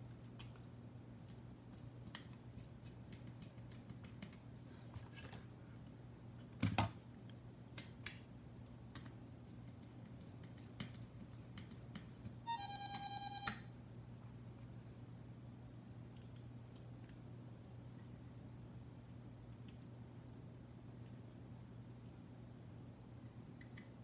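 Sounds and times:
faint low hum: 0.0 - 24.0
electronic alert tone: 12.5 - 13.6.

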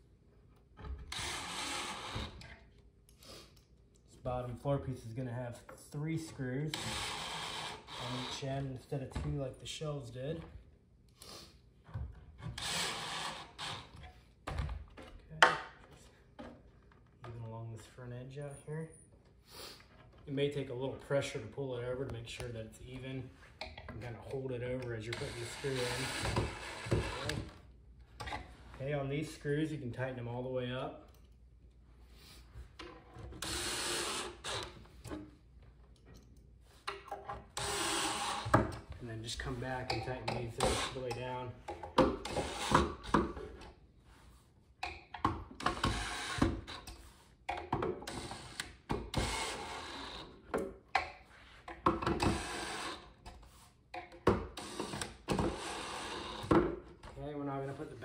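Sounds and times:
cordless drill driving a screw: 1.1 - 2.4, 6.7 - 8.4, 12.6 - 13.9, 25.1 - 27.4, 33.4 - 34.8, 37.6 - 38.6, 45.8 - 46.8, 48.1 - 50.2, 54.6 - 56.4.

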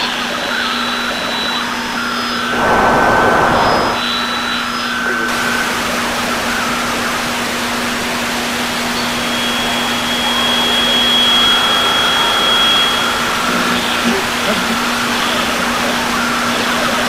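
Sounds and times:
radio static hiss: 2.5 - 4.1
steady low hum: 2.5 - 4.1
thin high whistle: 9.0 - 14.5.

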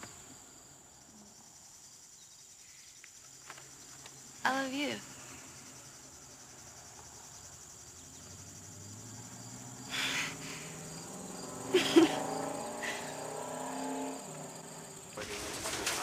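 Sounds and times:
crickets chirping: 0.0 - 16.0
soft laughter: 9.9 - 10.8, 11.7 - 13.2.

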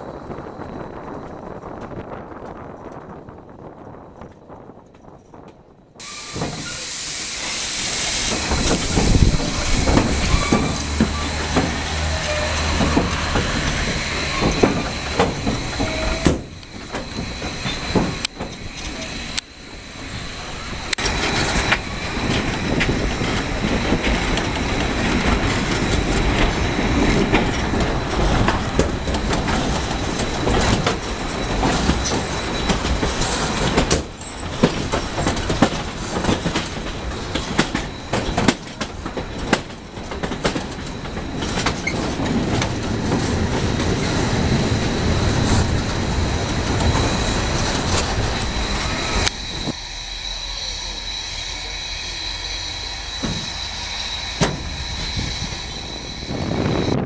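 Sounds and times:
train wheels clattering over rails: 0.0 - 57.0
thin wheel squeal: 6.0 - 12.8, 13.9 - 16.4, 47.1 - 56.9.

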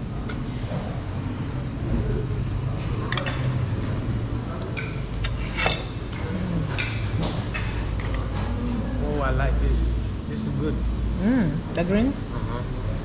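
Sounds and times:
low background hum: 0.0 - 13.0
cutlery and crockery clinking: 3.0 - 3.7, 4.6 - 8.6.

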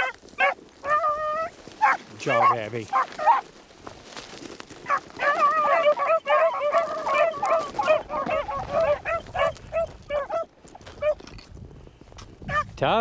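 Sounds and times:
dogs baying: 0.0 - 3.5, 4.8 - 11.2, 12.5 - 12.7.

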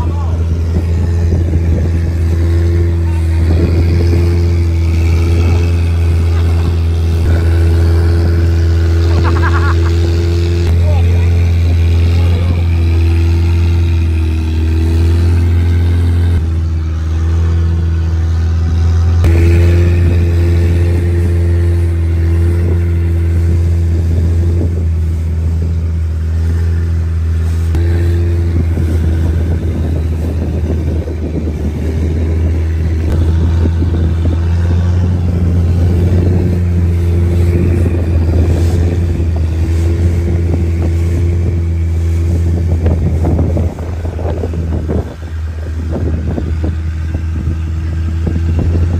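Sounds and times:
wind and water rushing: 0.0 - 16.8, 17.4 - 48.9
motorboat engine humming: 0.0 - 48.9.

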